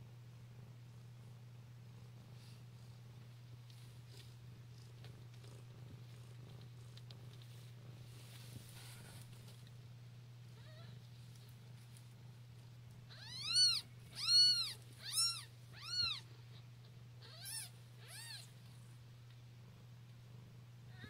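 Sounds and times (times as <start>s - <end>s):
kittens mewing: 13.1s - 16.2s, 17.2s - 18.5s.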